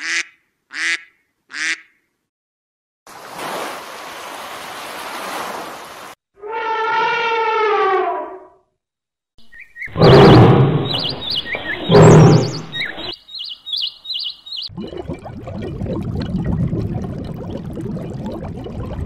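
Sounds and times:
small birds chirping: 9.4 - 14.7
big cat growling: 11.8 - 12.8.

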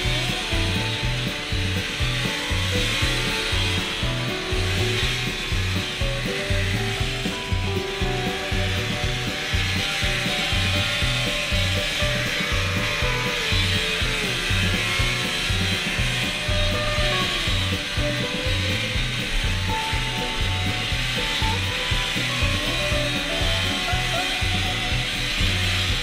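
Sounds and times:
rock music with pulsing bass: 0.0 - 26.0.

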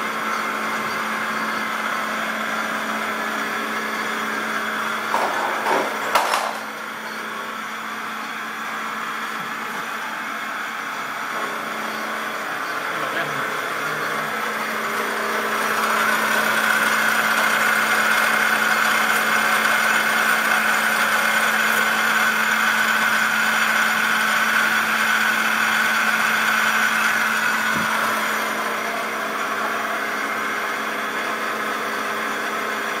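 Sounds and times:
milling machine cutting metal: 11.2 - 32.9.

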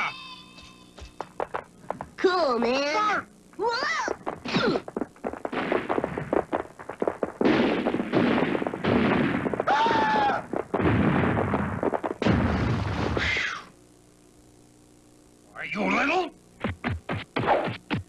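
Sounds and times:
cartoon boulder tumbling and crashing: 5.4 - 13.6.

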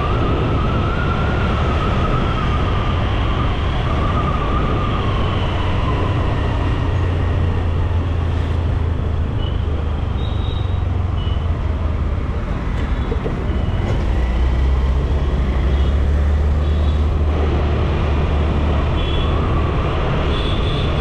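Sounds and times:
wavering siren: 0.0 - 7.3
wind and road noise: 0.0 - 21.0.

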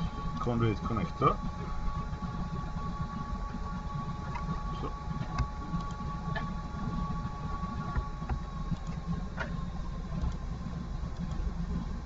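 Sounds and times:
computer hum: 0.0 - 12.0
faint steady tones: 0.0 - 12.0
computer mouse clicks: 11.2 - 11.4.

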